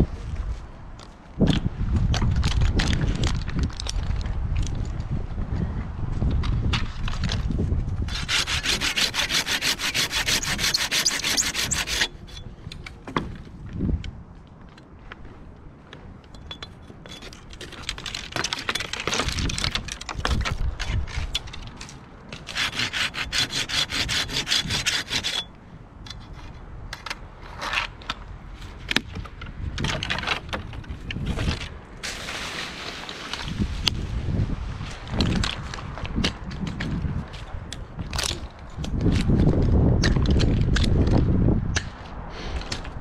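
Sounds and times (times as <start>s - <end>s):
hand saw cutting wood: 8.1s - 12.4s, 22.3s - 25.5s.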